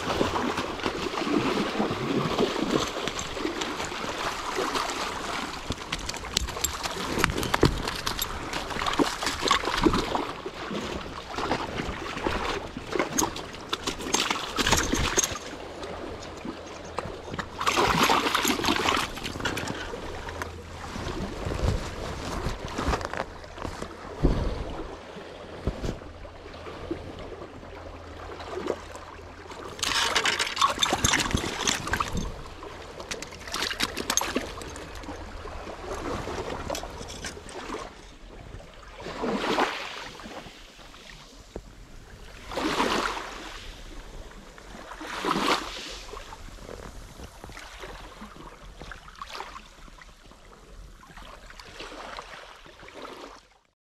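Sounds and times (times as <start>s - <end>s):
waves washing over gravel beach: 0.0s - 25.0s, 39.0s - 41.5s, 42.2s - 48.4s.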